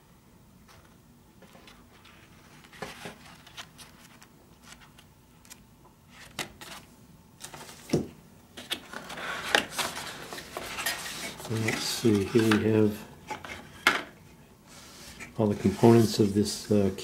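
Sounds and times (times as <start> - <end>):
book pages rustling: 1.4 - 8.0, 8.6 - 13.7.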